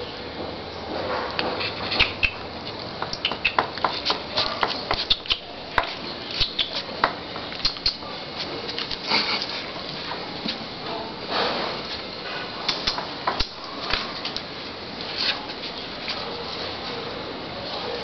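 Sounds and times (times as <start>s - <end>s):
dogs scuffling and playing: 1.1s - 10.6s, 13.6s - 18.0s.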